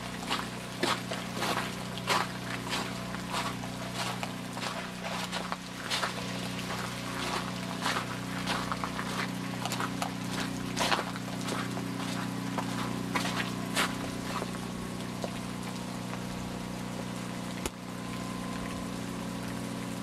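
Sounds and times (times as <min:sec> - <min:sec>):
ice crackling and crunching: 0:00.3 - 0:14.6.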